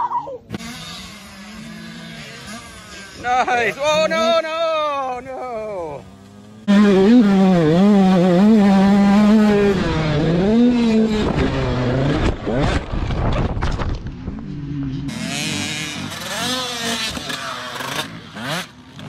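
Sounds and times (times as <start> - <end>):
faint dirt bike engine revving: 0.0 - 19.0
dirt bike engine revving: 0.4 - 19.0
knocks and scraping: 9.1 - 15.4.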